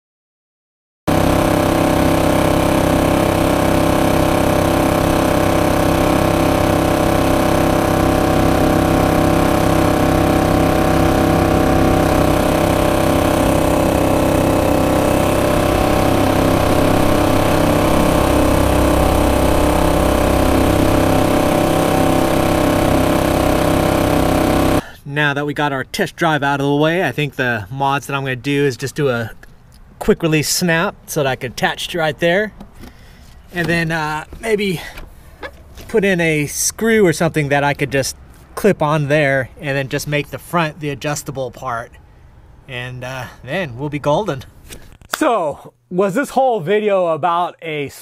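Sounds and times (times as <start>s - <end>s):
outboard motor running: 1.1s - 24.9s.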